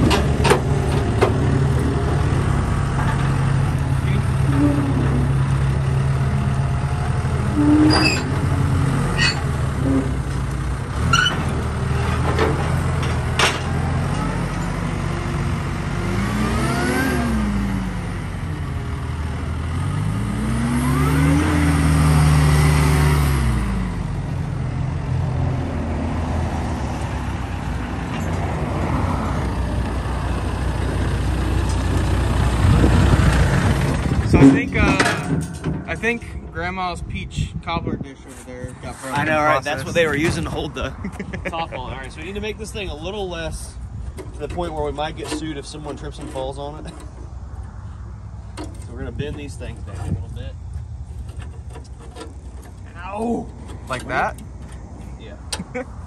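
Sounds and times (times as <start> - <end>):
diesel engine revving: 0.0 - 37.8
sharp metal clanks: 34.3 - 36.9.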